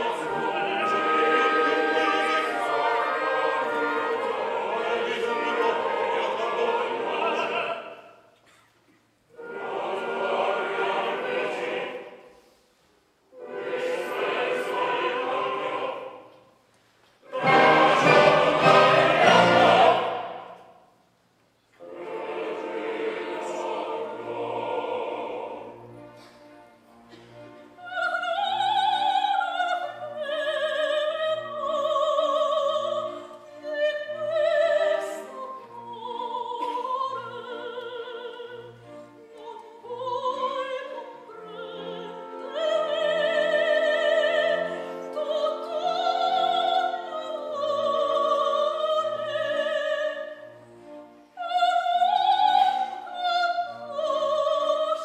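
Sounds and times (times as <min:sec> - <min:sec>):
orchestral accompaniment: 0:00.0 - 0:07.9, 0:09.3 - 0:12.4, 0:13.3 - 0:16.3, 0:17.2 - 0:20.7, 0:21.8 - 0:55.0
operatic soprano singing: 0:00.0 - 0:08.2, 0:09.4 - 0:12.3, 0:13.4 - 0:16.4, 0:17.2 - 0:20.7, 0:21.8 - 0:25.9, 0:27.8 - 0:50.5, 0:51.3 - 0:55.0
loud orchestral chord: 0:17.3 - 0:20.4.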